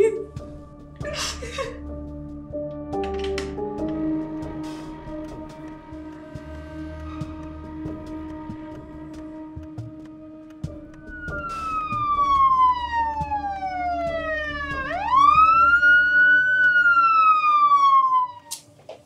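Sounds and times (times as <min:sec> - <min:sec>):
police siren wailing: 0:04.0 - 0:18.5.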